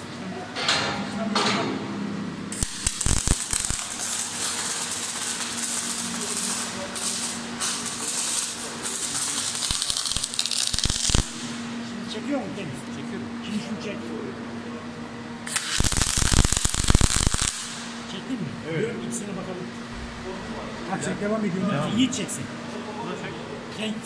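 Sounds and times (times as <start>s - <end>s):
sharp welding pops: 2.5s - 11.6s, 15.4s - 18.0s
welding arc crackling: 2.5s - 11.8s, 15.4s - 18.1s.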